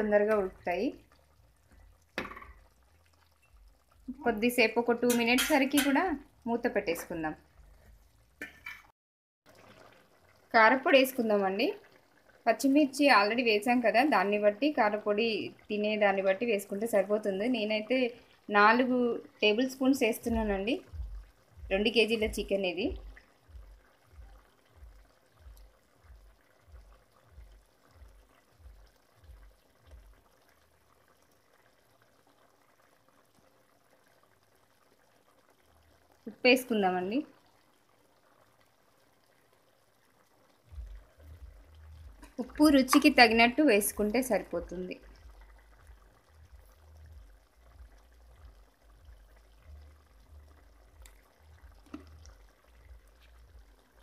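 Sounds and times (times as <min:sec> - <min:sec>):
curry bubbling in a pot: 0:00.0 - 0:08.9, 0:09.5 - 0:54.0
low steady hum: 0:19.0 - 0:30.9, 0:40.0 - 0:54.0.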